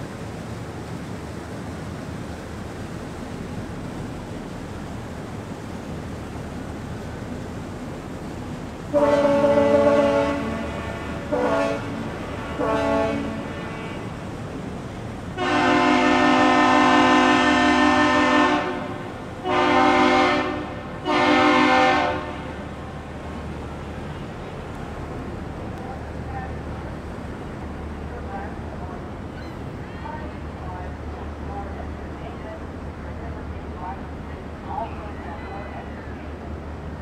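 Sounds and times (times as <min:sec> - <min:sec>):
diesel engines humming: 0:00.0 - 0:37.0
air horn blasts: 0:09.0 - 0:14.1, 0:15.4 - 0:22.6.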